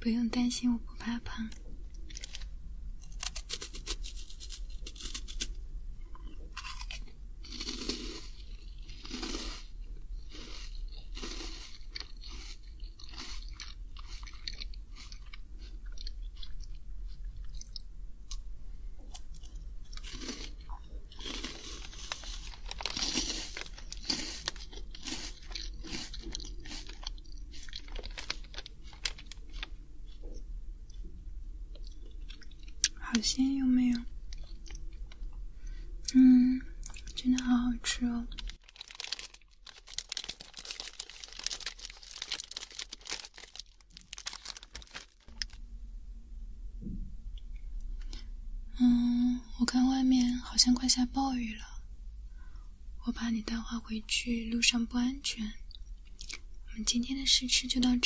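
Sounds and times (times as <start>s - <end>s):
crisp snack crunching: 2.0s - 16.8s, 19.1s - 29.8s, 38.3s - 45.6s.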